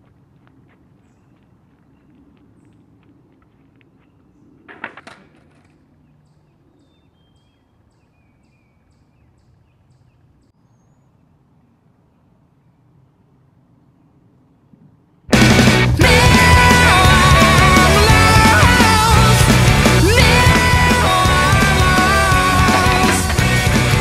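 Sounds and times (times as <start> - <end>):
light footsteps: 0.0 - 4.3
birds chirping: 0.9 - 4.8, 5.7 - 13.3.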